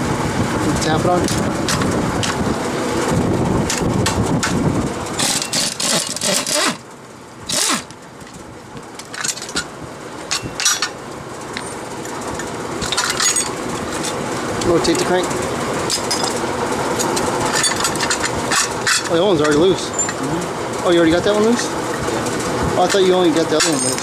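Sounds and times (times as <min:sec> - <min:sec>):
motor-like drone: 0:00.0 - 0:23.5
metal parts tapping and clinking: 0:05.2 - 0:06.8, 0:09.0 - 0:09.7, 0:10.3 - 0:11.0, 0:12.8 - 0:14.2, 0:15.9 - 0:16.4, 0:17.0 - 0:20.3, 0:22.8 - 0:24.0.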